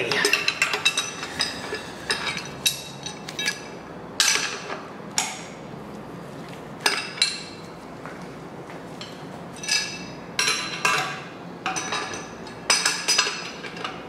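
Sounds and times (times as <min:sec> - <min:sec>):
wrenches clinking against steel bolts: 0:09.6 - 0:14.0.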